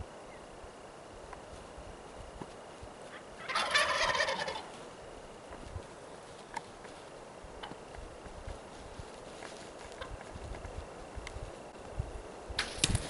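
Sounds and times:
turkey gobbling: 0:03.1 - 0:04.8.

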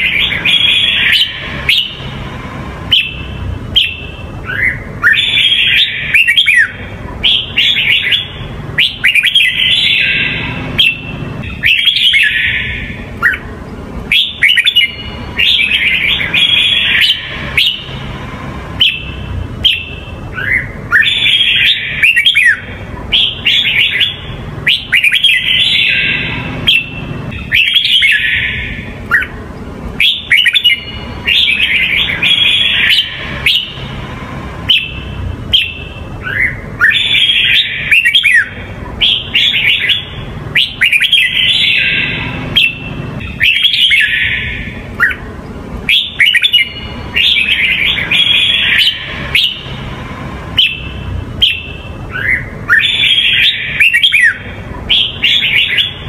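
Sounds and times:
bird warbling whistled phrases: 0:00.0 - 0:02.2, 0:02.9 - 0:13.5, 0:14.1 - 0:18.1, 0:18.8 - 0:29.4, 0:30.0 - 0:33.9, 0:34.7 - 0:45.2, 0:45.9 - 0:49.8, 0:50.6 - 0:56.0
low steady hum: 0:00.0 - 0:56.0.

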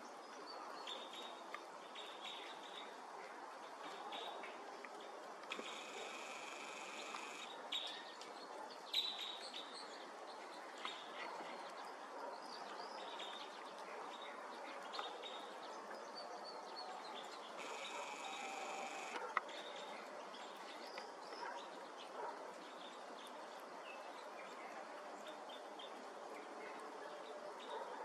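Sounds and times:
bird chip calls: 0:17.6 - 0:19.2.

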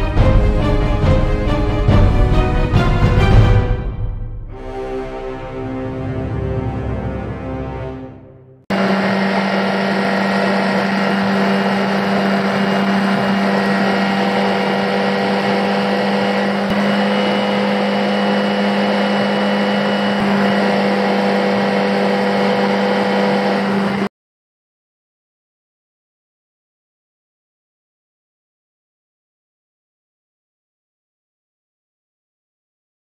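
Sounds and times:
outboard engine drone: 0:08.7 - 0:24.1.

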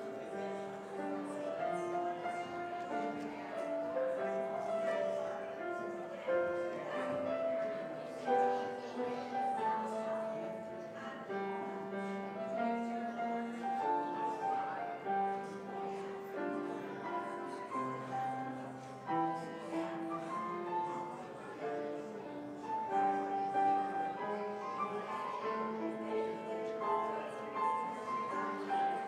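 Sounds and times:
slow keyboard music: 0:00.0 - 0:29.0.

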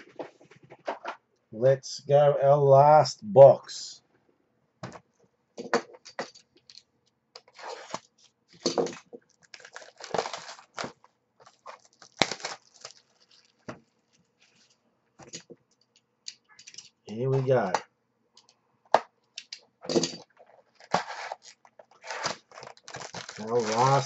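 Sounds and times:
cardboard tearing and rustling: 0:07.5 - 0:08.1, 0:08.9 - 0:13.7, 0:20.6 - 0:24.0
small clicks and scrapes: 0:14.1 - 0:17.0.

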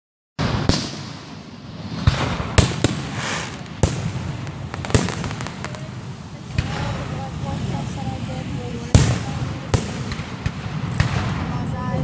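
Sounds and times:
fireworks bangs: 0:00.4 - 0:12.0
continuous noisy din: 0:02.1 - 0:12.0.

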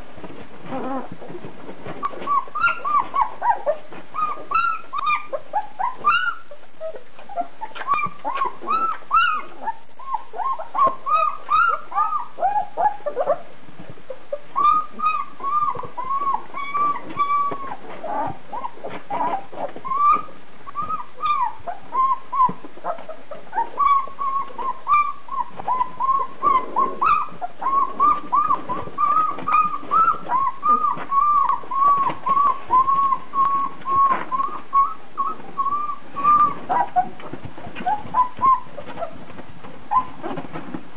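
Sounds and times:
puppies whimpering and squeaking: 0:00.2 - 0:40.9.

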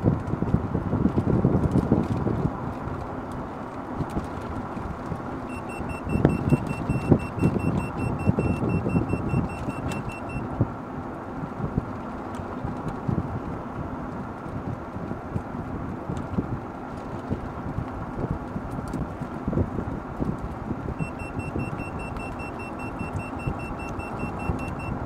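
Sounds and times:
wind on microphone: 0:00.0 - 0:03.2, 0:06.0 - 0:10.8, 0:12.6 - 0:25.0
road rumble: 0:00.0 - 0:25.0
rapid high beeping: 0:05.5 - 0:10.5, 0:21.0 - 0:25.0.

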